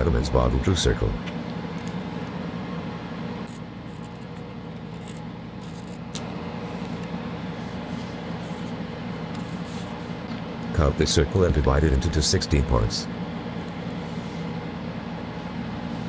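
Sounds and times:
low background hum: 0.0 - 16.0
pen scratching on paper: 7.8 - 10.1.

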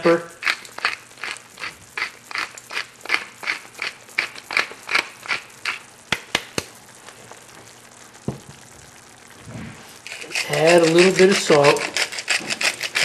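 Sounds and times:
pepper mill grinding: 0.0 - 6.4, 10.0 - 13.0.

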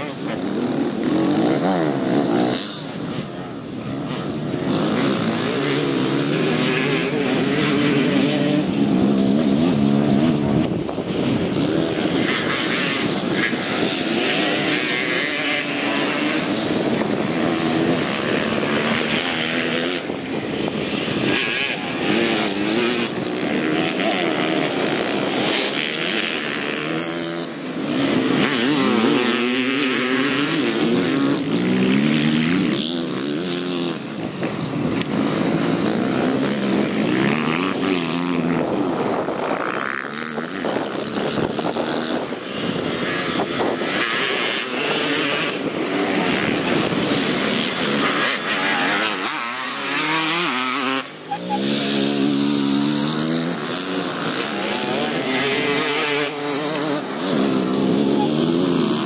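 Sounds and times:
dirt bike engines revving: 0.0 - 59.0.

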